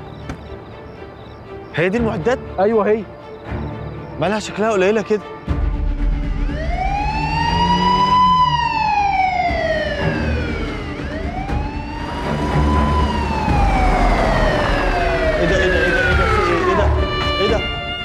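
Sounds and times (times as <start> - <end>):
police siren wailing: 6.2 - 18.0
low rumble: 9.7 - 17.2.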